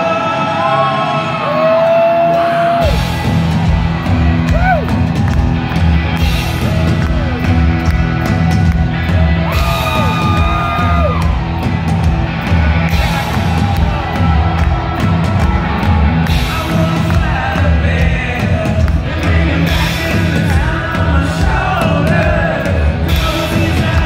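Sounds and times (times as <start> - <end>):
bass: 0.0 - 24.0
electric guitars: 0.0 - 24.0
drums: 1.4 - 24.0
guitar lead with bent notes: 2.8 - 24.0.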